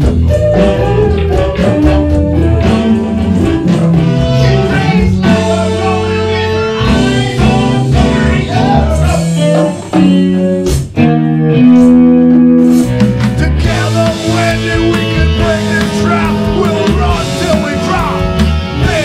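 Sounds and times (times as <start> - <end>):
congas: 0.0 - 10.9
electric bass: 0.0 - 19.0
electric guitar: 0.0 - 19.0
man singing: 4.2 - 9.9, 13.4 - 19.0.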